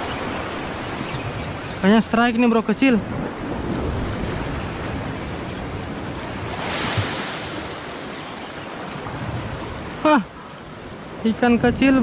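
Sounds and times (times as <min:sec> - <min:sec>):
wind on microphone: 0:00.0 - 0:12.0
sea swell washing on rocks: 0:05.8 - 0:10.1.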